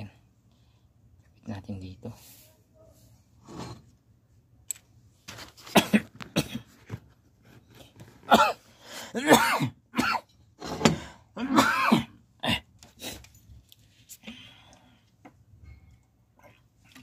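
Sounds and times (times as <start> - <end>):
person coughing: 5.7 - 6.7, 8.3 - 10.3, 11.4 - 12.6.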